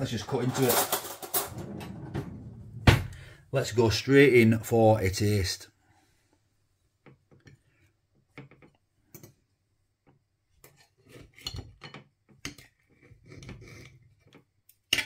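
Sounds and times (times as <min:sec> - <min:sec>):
cutlery scraping ceramic plate: 0:10.6 - 0:14.2.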